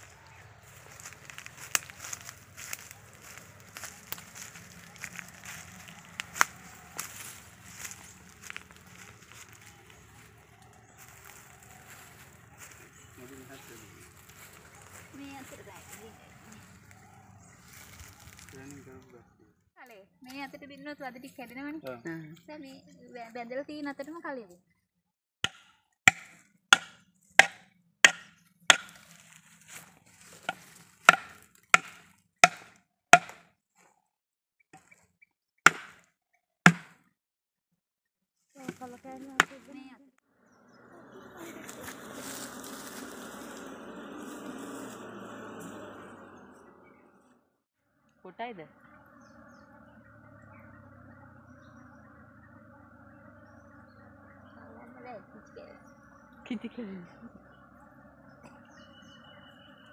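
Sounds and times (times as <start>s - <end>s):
honeybees humming: 0.0s - 19.1s, 38.6s - 59.9s
faint bird chirps: 0.0s - 19.4s, 48.1s - 59.9s.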